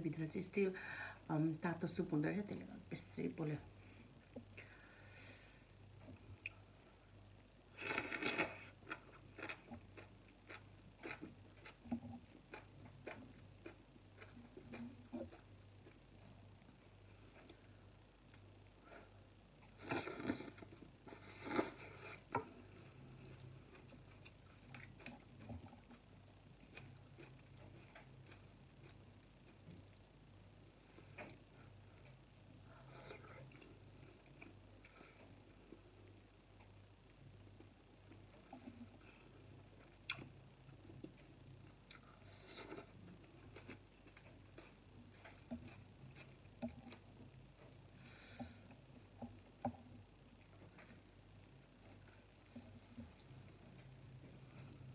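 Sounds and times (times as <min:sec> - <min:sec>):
crunching and chewing greens: 0:07.9 - 0:16.4, 0:19.8 - 0:30.0, 0:37.4 - 0:54.9.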